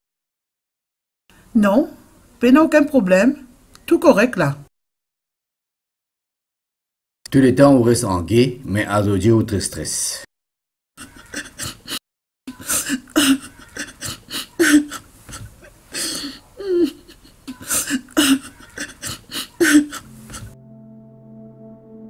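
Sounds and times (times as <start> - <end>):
woman sobbing: 11.0 - 20.6.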